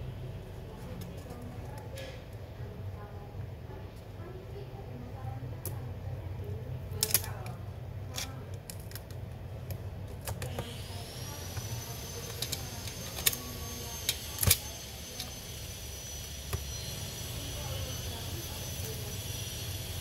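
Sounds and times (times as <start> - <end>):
metal and plastic clicks: 6.9 - 10.6
thin high whine: 10.8 - 20.0.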